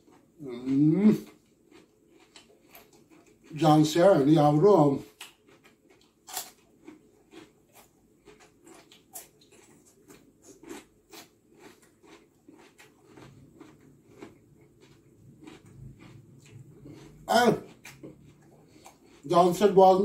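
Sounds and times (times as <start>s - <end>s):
person chewing food: 0.0s - 4.0s, 4.6s - 20.0s.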